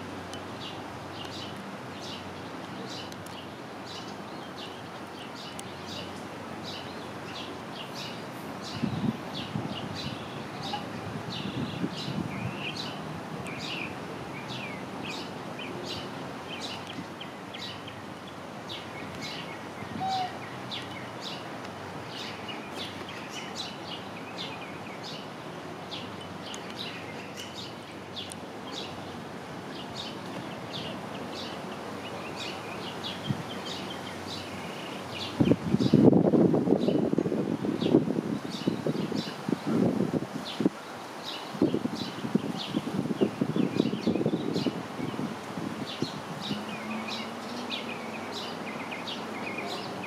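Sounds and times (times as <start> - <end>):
steady background hiss: 0.0 - 50.0
small birds chirping: 0.3 - 21.5, 22.1 - 36.1, 45.9 - 50.0.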